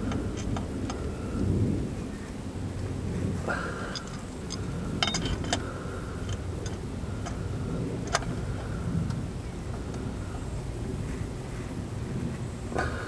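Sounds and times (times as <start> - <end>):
steady low rumble: 0.0 - 13.0
wrench clicking on metal: 3.9 - 7.4.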